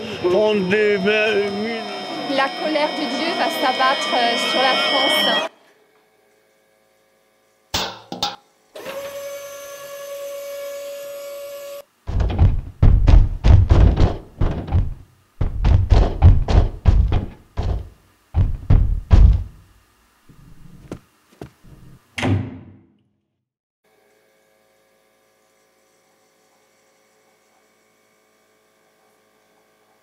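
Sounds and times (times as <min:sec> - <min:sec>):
high-pitched tone: 0:00.2 - 0:05.5
door shutting: 0:12.1 - 0:19.6
heavy footsteps running up stairs: 0:12.1 - 0:19.6.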